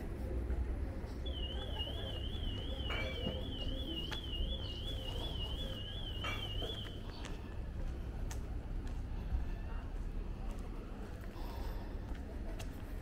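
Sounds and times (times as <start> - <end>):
low street background: 0.0 - 13.0.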